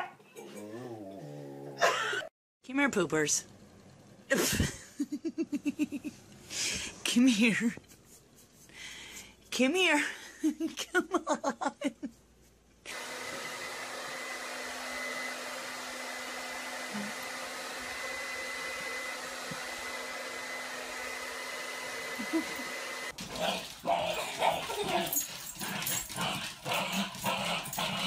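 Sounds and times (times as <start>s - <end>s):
hair dryer blowing: 12.9s - 23.2s
dog yipping and growling: 23.2s - 28.0s.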